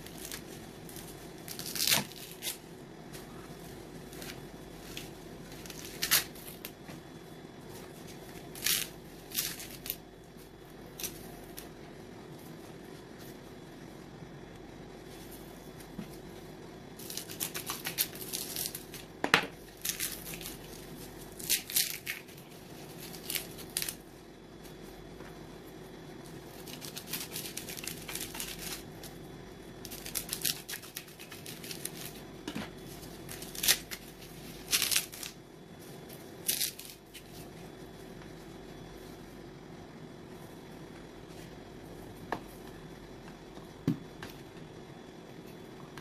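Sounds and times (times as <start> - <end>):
coconut husk scraping and tearing: 0.0 - 2.6, 32.9 - 35.4.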